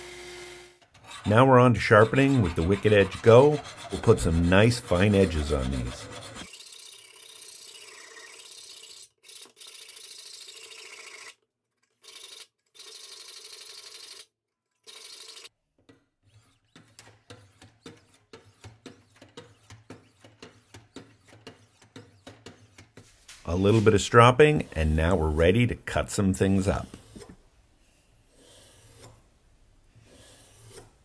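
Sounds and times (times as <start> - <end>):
sharpening strokes: 1.0 - 11.0, 16.2 - 25.4, 26.6 - 29.3, 30.0 - 31.0.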